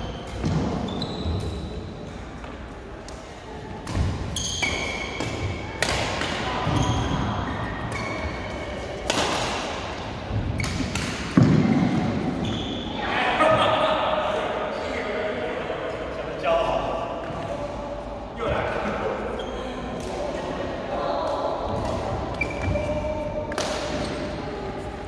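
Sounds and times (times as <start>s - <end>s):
shoes squeaking on court: 0.0s - 2.4s, 4.3s - 5.6s, 10.5s - 12.9s, 19.3s - 19.9s, 22.3s - 23.2s
rackets hitting shuttlecock: 2.4s - 7.2s, 7.8s - 12.6s, 21.7s - 24.4s.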